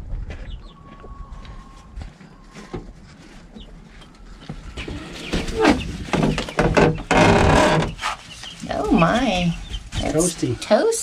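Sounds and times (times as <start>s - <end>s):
chicks cheeping: 0.3s - 10.6s
knocks and rustling: 2.1s - 8.6s.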